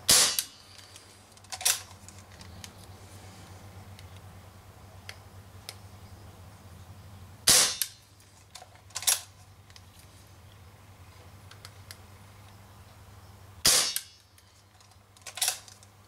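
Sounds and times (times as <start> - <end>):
air revolver shots: 0.1 - 0.7, 7.4 - 8.0, 13.6 - 14.2.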